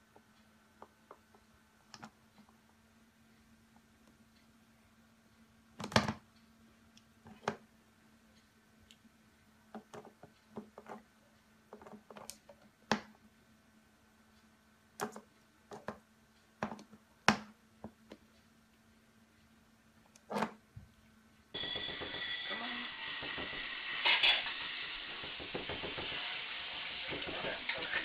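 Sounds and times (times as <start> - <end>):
faint steady hum: 0.0 - 25.4.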